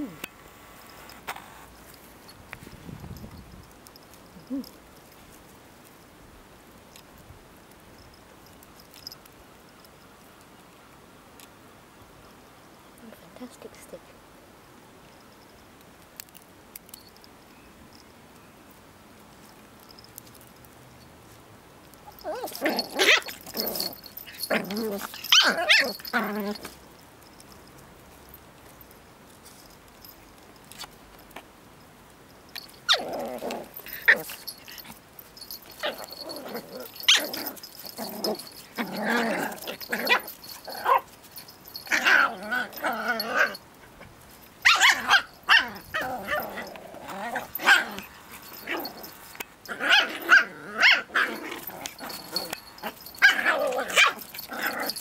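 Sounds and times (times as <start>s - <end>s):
puppies growling and barking: 22.0s - 26.8s, 32.6s - 43.8s, 44.6s - 55.0s.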